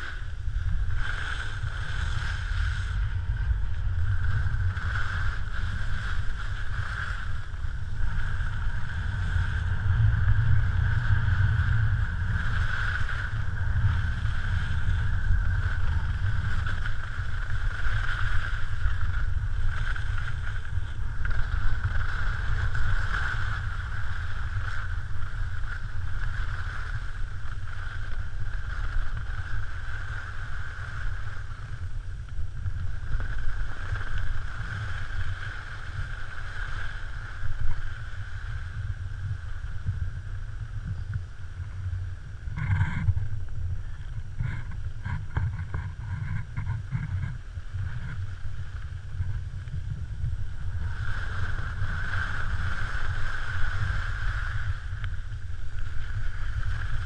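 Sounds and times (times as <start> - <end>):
skis hissing over snow: 0.0 - 57.0
wind rumbling on microphone: 0.0 - 57.0.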